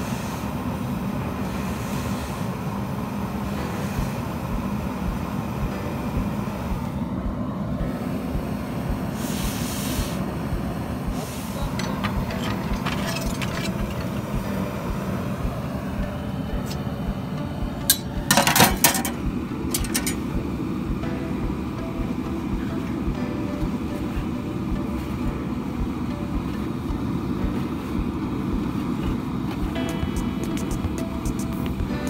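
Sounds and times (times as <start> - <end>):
metal tongs clinking: 11.7 - 14.2, 17.9 - 20.2.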